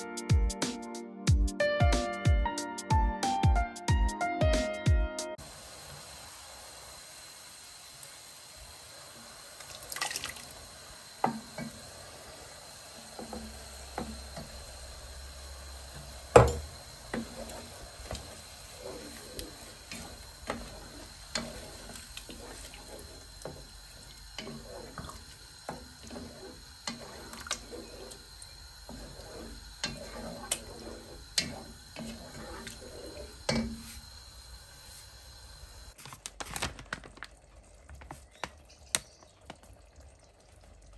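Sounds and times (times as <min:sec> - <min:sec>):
sauce poured into a pot: 0:09.5 - 0:10.7
spatula stirring wet sauce: 0:13.1 - 0:34.0
knocks against a pot: 0:16.3 - 0:16.7.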